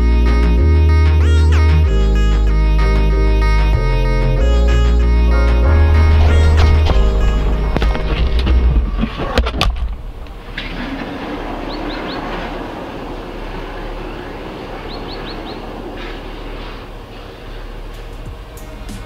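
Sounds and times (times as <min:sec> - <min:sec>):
outdoor rumble and hiss: 0:02.5 - 0:19.0
car driving rumble in cabin: 0:05.4 - 0:19.0
small birds chirping: 0:11.6 - 0:12.4, 0:13.8 - 0:19.0.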